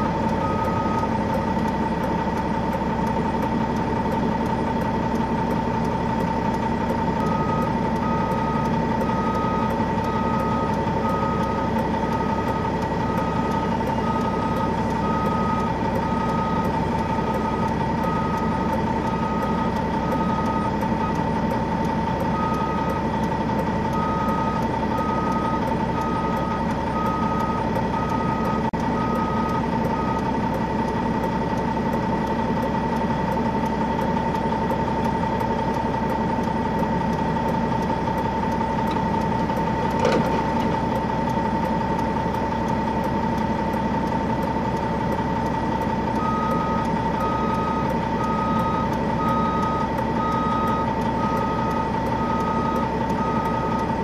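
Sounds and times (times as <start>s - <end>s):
truck engine idling: 0.0s - 54.0s
backup alarm beeping: 7.2s - 21.2s, 24.0s - 30.3s, 46.2s - 53.9s.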